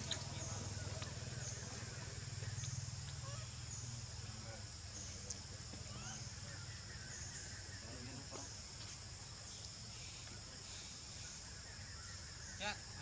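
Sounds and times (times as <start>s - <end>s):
low outdoor rumble: 0.0s - 7.3s
insects droning: 0.0s - 13.0s.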